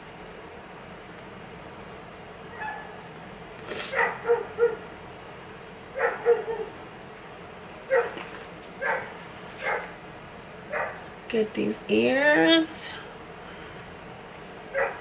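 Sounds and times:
dog barking: 2.5 - 3.0, 3.9 - 4.9, 6.0 - 6.8, 7.9 - 8.2, 8.8 - 10.0, 10.7 - 11.0, 14.7 - 15.0.

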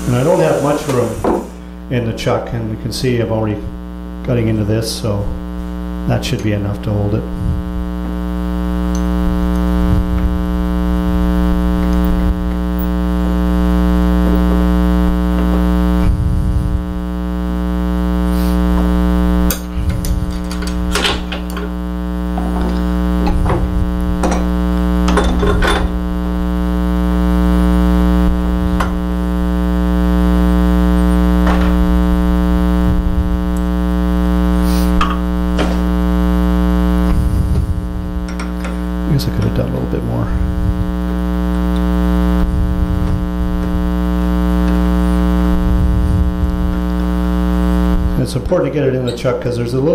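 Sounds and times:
electrical mains hum: 0.0 - 49.9.

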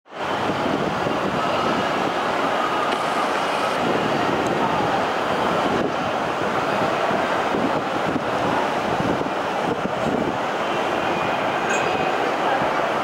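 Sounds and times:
city ambience: 0.1 - 13.0.

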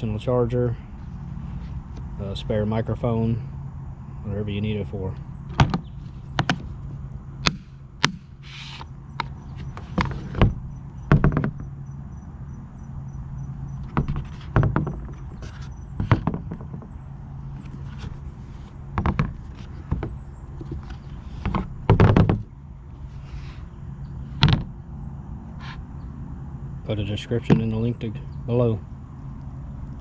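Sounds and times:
steady low hum: 0.0 - 30.0
knocks on plastic case: 10.0 - 11.6, 19.0 - 20.8, 21.4 - 22.5.

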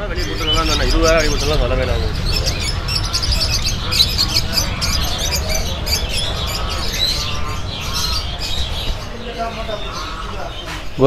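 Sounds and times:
low steady rumble: 0.0 - 10.5
cage birds chirping: 0.0 - 11.0.

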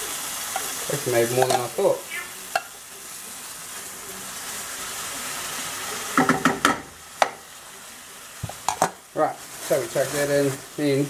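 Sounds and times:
potato sizzling in frying pan: 0.0 - 11.0
utensil knocking on cookware: 6.2 - 7.4, 8.4 - 9.0.

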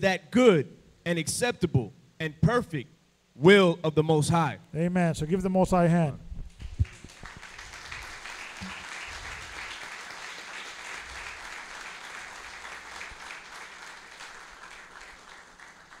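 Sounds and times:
congregation applauding: 6.6 - 16.0.

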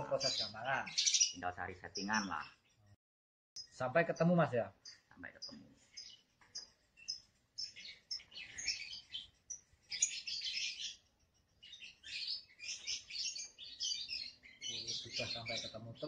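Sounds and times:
high bird chirps: 0.0 - 2.9, 3.6 - 16.0
lovebirds chattering: 0.0 - 2.9, 3.6 - 16.0.

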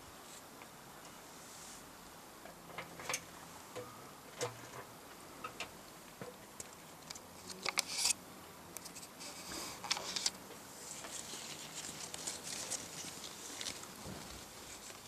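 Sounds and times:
leaves rustling against camera: 8.8 - 15.0.

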